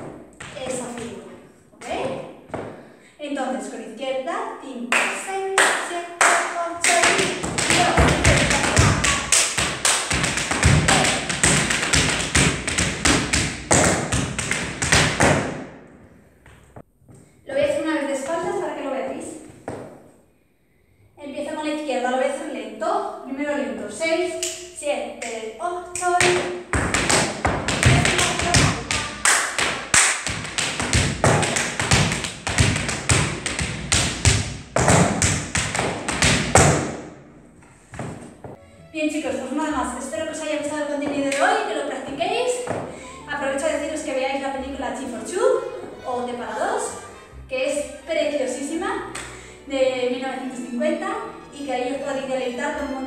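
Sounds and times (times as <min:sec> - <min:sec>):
tap shoes striking floor: 0:01.8 - 0:02.8, 0:06.9 - 0:15.7, 0:19.5 - 0:20.0, 0:26.2 - 0:37.0, 0:37.9 - 0:38.6, 0:42.6 - 0:42.9.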